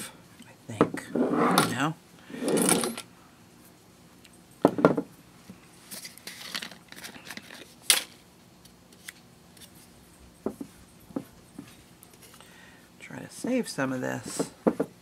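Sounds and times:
wooden box knocking on table: 4.6s - 5.1s
scraping and rustling: 5.8s - 8.2s.

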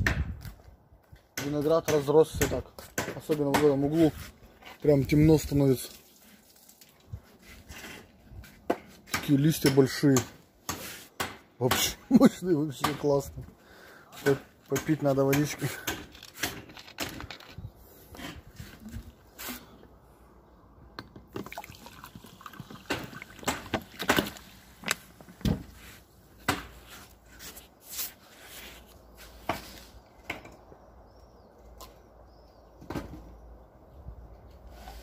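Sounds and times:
water pouring: 5.6s - 7.1s, 21.4s - 24.1s
person sipping water: 21.5s - 23.4s.

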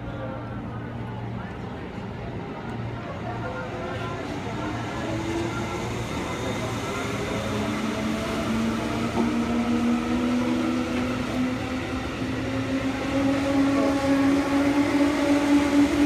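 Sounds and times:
train wheels rumbling on rails: 3.5s - 16.0s.

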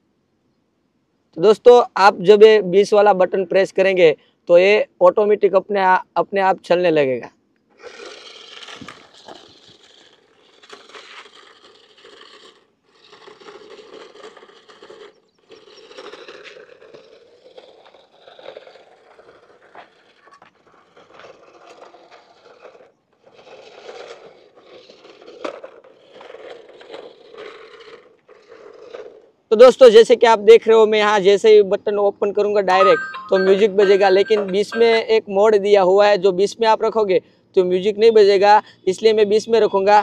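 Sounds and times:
plastic wheels scraping on asphalt: 7.4s - 30.4s, 36.1s - 40.0s
toy motor and gears whirring: 7.7s - 29.3s.

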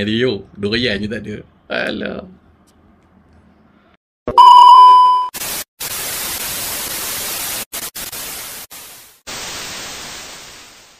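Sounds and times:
electronic beep: 4.3s - 5.3s
static hiss: 5.4s - 10.9s.

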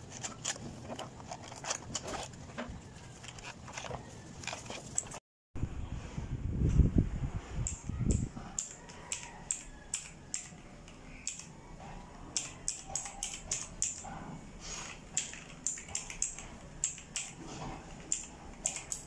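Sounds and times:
mechanical keyboard typing clicks: 7.6s - 11.5s, 12.3s - 14.0s, 15.1s - 17.4s, 18.0s - 19.0s.

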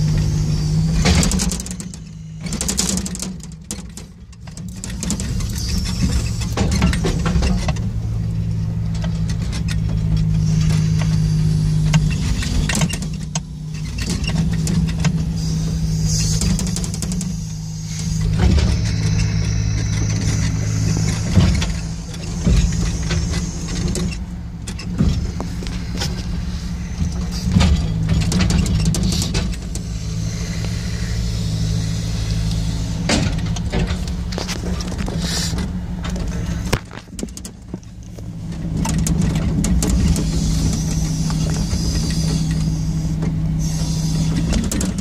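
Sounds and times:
engine running steadily: 0.0s - 45.0s
crane knocking and clattering: 18.2s - 30.0s.

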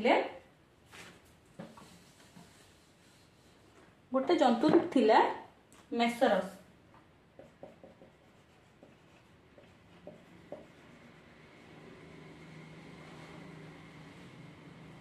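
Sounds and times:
faint steady hum: 0.0s - 15.0s
marker writing on whiteboard: 7.3s - 11.3s.

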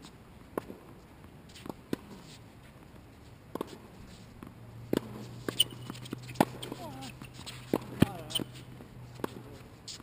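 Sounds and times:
tennis ball knocking on court: 4.4s - 6.9s.

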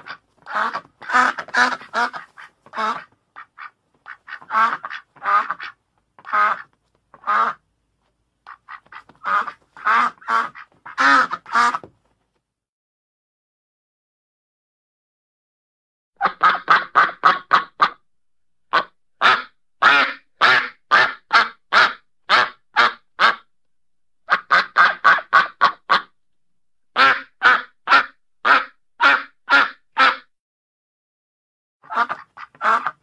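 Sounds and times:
duck quacking: 0.0s - 7.6s, 8.4s - 11.9s, 16.2s - 18.0s, 18.7s - 23.5s, 24.3s - 26.1s, 26.9s - 30.3s, 31.8s - 33.0s.

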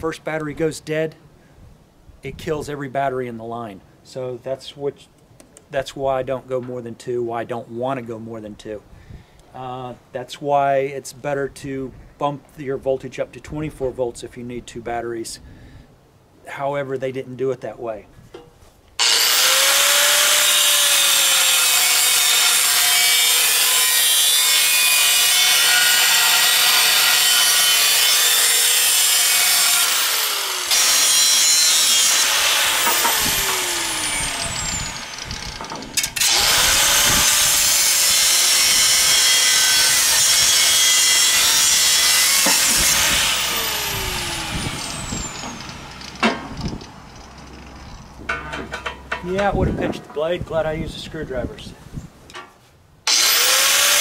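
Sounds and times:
angle grinder cutting steel: 19.0s - 49.4s, 53.1s - 54.0s.

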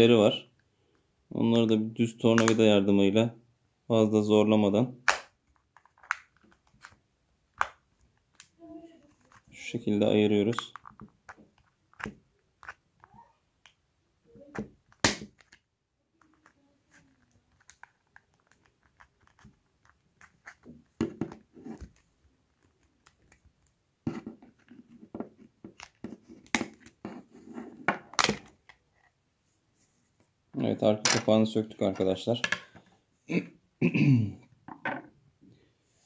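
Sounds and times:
hard plastic clicks and snaps: 2.4s - 2.6s, 7.6s - 8.6s.

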